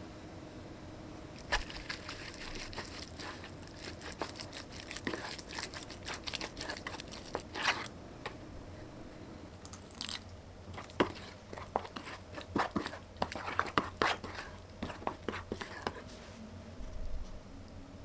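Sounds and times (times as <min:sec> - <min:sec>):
sticky sauce squelching: 0:01.4 - 0:07.9, 0:09.6 - 0:16.0.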